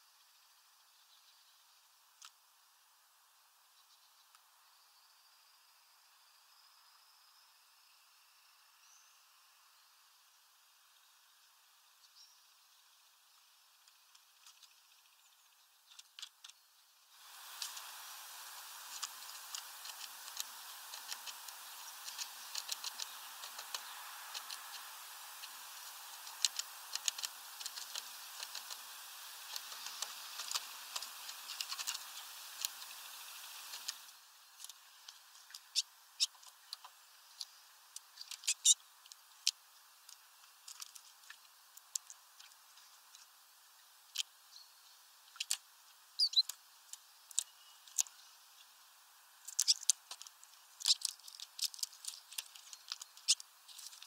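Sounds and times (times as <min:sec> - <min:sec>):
steady hiss: 0:00.0 - 0:54.0
bird feet tapping plastic: 0:18.7 - 0:34.0.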